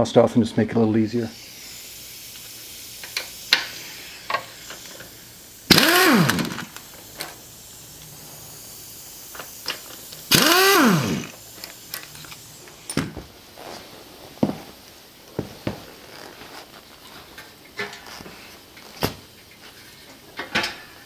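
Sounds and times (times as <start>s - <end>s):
clicks and knocks of tools: 3.0s - 3.7s, 17.4s - 18.0s, 19.5s - 20.9s
cordless drill spinning: 5.7s - 6.8s, 10.2s - 11.4s.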